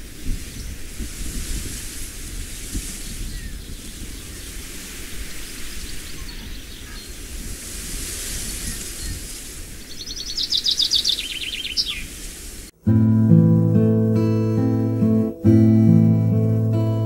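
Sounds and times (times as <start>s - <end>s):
wind blowing: 0.0s - 17.0s
bird singing fast trill: 9.8s - 12.1s.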